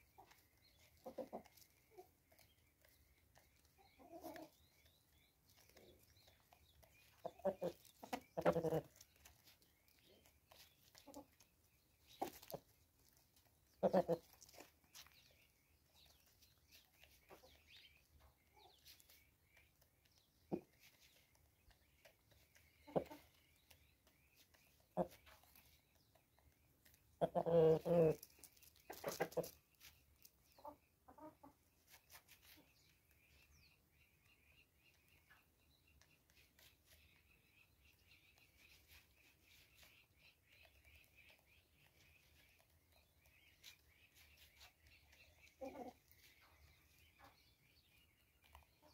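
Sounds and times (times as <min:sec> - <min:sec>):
small birds chirping: 0:00.0 - 0:48.9
rooster clucking: 0:07.3 - 0:09.0.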